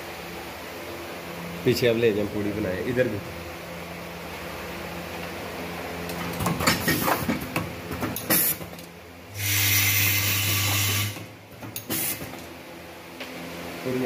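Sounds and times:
loud steady buzz with hiss: 0.0 - 7.2, 8.0 - 14.0
short sharp hisses: 11.9 - 12.3.

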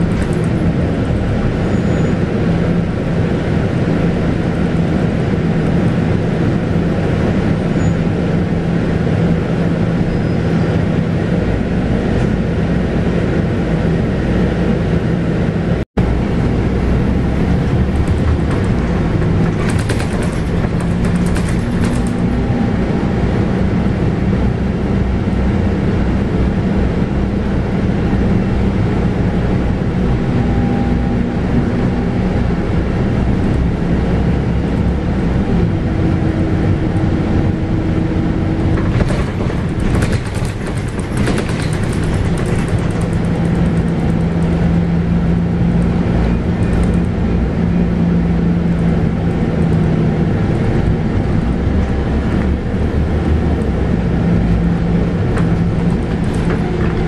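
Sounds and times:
bus diesel engine running: 0.0 - 57.0
road noise: 0.0 - 57.0
rattling: 17.4 - 22.5, 38.5 - 44.9, 55.1 - 57.0.

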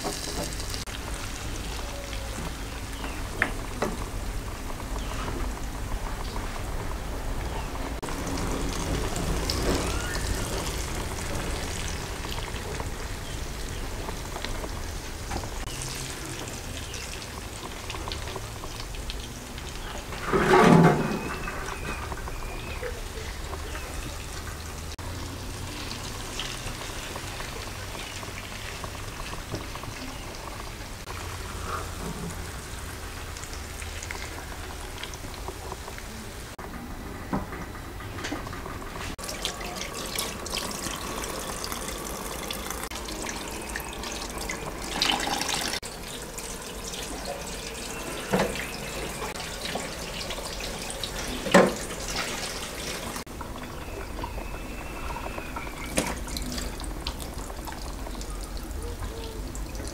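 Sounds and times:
tap water running into sink: 0.0 - 1.4, 39.0 - 59.9
food frying in a pan: 0.0 - 36.6, 38.4 - 59.9.

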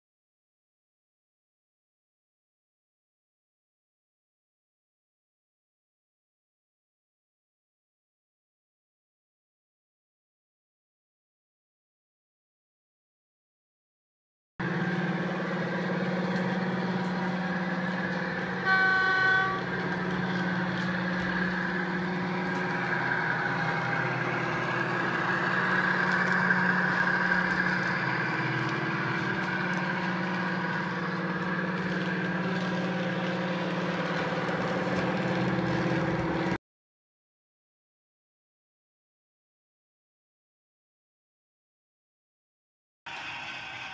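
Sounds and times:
diesel locomotive engine through loudspeaker: 14.6 - 36.6
locomotive horn blast: 17.4 - 22.1.

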